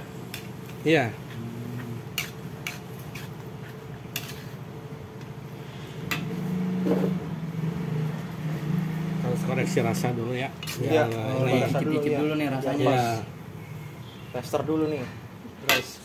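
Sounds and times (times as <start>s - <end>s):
steady low hum: 0.0s - 11.2s
metal spatula scraping a wok: 2.1s - 4.6s, 10.6s - 10.9s.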